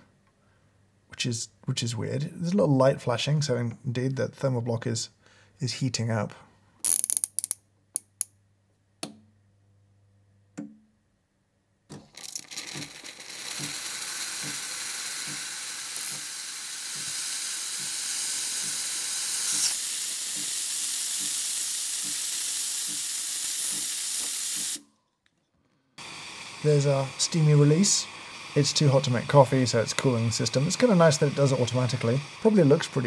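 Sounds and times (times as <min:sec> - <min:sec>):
steam hissing: 0:12.5 - 0:24.8, 0:26.0 - 0:33.0
steam dial clacks: 0:16.9 - 0:18.9, 0:21.2 - 0:21.4.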